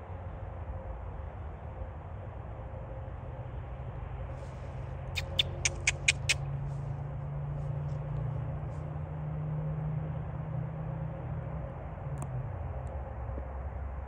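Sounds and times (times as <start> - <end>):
squeaky clicks: 5.2 - 6.4.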